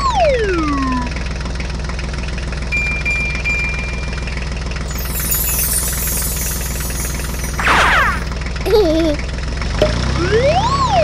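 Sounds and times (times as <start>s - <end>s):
thin high tone: 2.8s - 8.8s.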